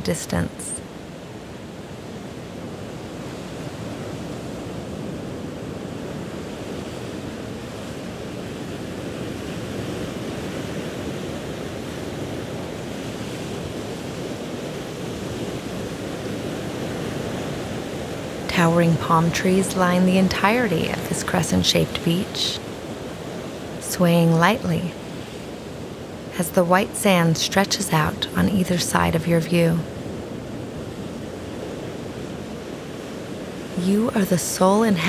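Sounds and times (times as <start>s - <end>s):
ocean waves washing onto beach: 0.0s - 35.0s.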